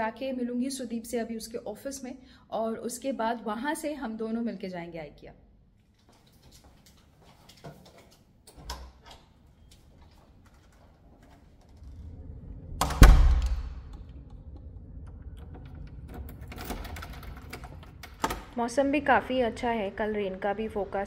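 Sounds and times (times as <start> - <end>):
steady low hum: 9.6 - 21.0
door clicks and rattles: 11.3 - 18.6
heavy door thud: 12.6 - 18.6.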